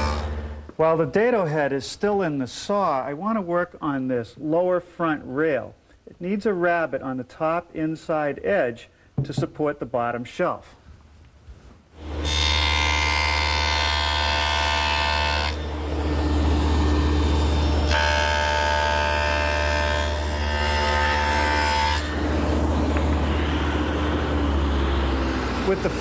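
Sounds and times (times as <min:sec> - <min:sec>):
saw cutting wood high whine: 0:00.0 - 0:00.6, 0:12.0 - 0:26.0
table saw running: 0:00.0 - 0:00.6, 0:12.0 - 0:26.0.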